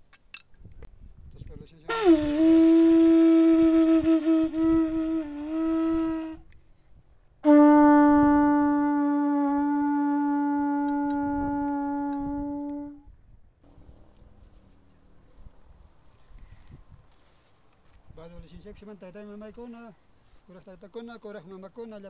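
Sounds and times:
horn trumpet blasts: 1.9 - 6.5, 7.4 - 13.0.

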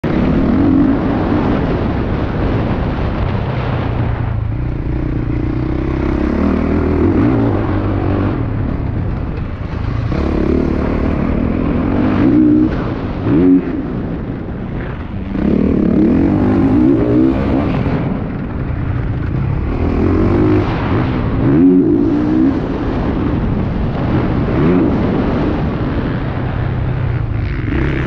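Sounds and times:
motocross engine revving: 0.0 - 3.8, 4.5 - 28.0
wind rush: 0.0 - 28.0.

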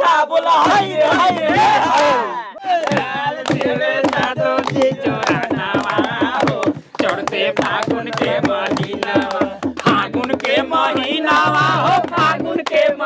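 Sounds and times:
men singing folk song: 0.0 - 13.0
hand claps: 0.6 - 13.0
hand drum strokes: 2.9 - 12.9.

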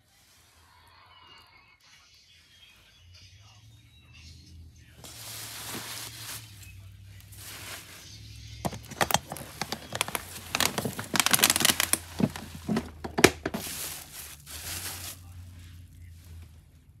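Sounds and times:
bubble wrap crinkling: 5.0 - 15.4.

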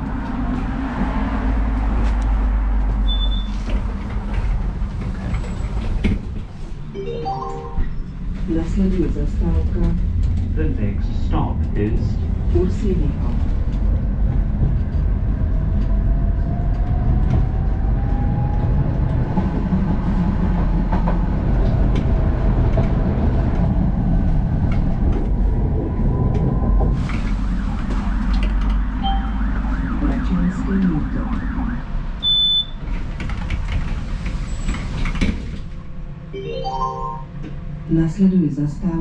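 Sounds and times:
tram wheels rumbling on rails: 0.0 - 6.9, 7.8 - 36.3.

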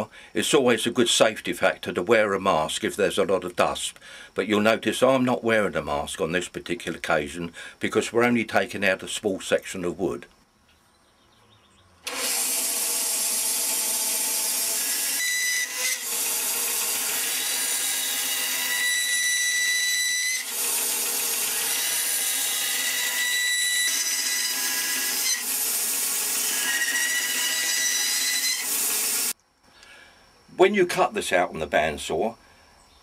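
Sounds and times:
bandsaw blade cutting wood: 12.0 - 29.4
bandsaw running: 12.1 - 29.4.

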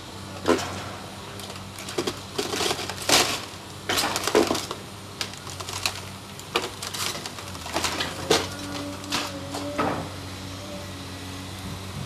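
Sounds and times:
excavator diesel engine hum: 0.0 - 12.0
debris cracking and crashing: 1.4 - 9.6.

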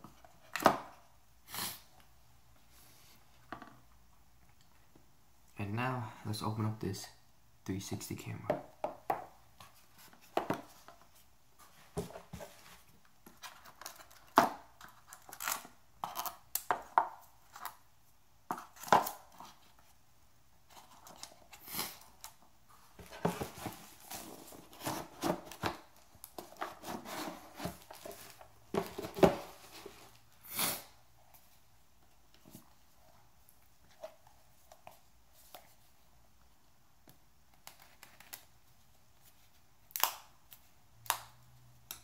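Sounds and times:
cardboard packaging taps and knocks: 27.6 - 29.5.

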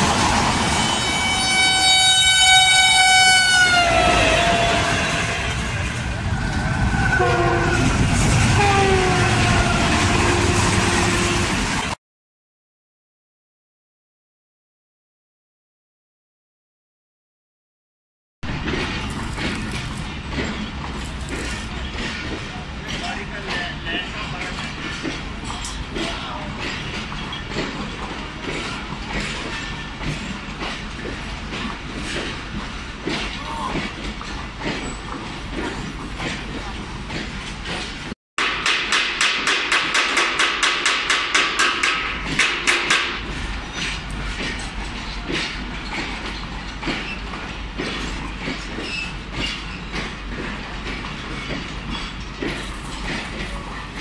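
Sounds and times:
train rumble: 0.0 - 12.0, 18.4 - 54.0
train wheels clacking over rail joints: 18.5 - 54.0
wheel squeal: 48.8 - 50.0.

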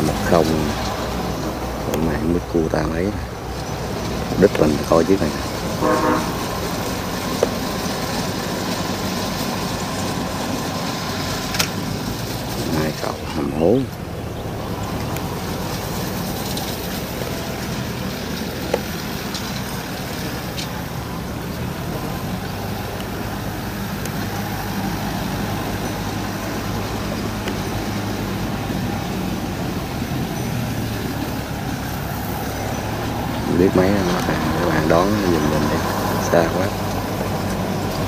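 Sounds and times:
tractor engine running: 0.0 - 38.0.

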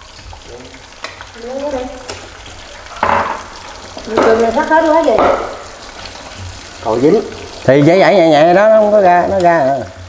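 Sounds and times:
fish cakes sizzling in oil: 0.0 - 10.0.

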